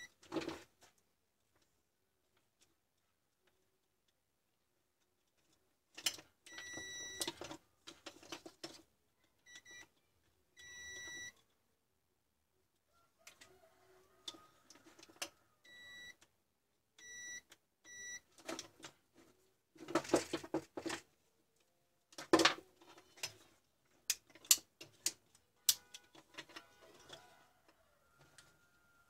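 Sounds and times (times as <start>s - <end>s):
clicks and rustling of handling: 4.9s - 10.4s, 13.2s - 15.4s, 18.3s - 28.6s
multimeter beeping: 6.5s - 7.3s, 10.6s - 11.4s, 15.7s - 16.2s, 17.0s - 18.2s.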